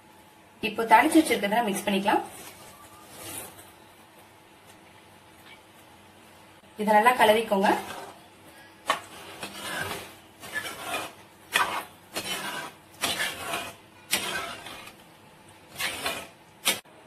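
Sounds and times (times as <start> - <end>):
ladle stirring thick gravy: 7.7 - 16.8.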